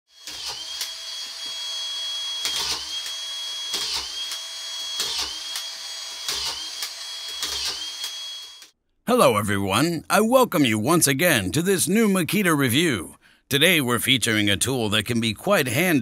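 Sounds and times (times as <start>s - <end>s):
screwdriver high whine: 0.1s - 8.8s.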